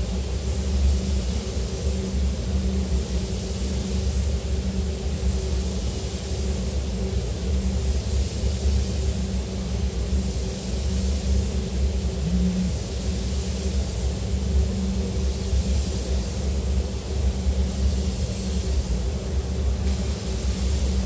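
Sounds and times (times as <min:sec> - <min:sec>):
ventilation fans rumbling: 0:00.0 - 0:21.0
spray guns hissing: 0:19.9 - 0:21.0.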